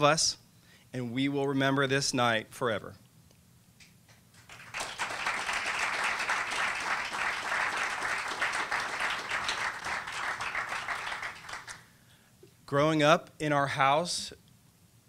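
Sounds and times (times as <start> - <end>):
audience applause: 4.4 - 11.9.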